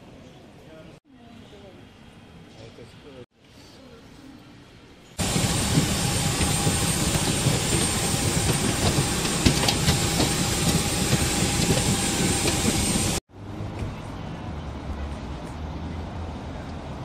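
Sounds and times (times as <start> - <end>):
jet aircraft rushing: 5.2 - 13.2
jet engine high whine: 5.2 - 13.2.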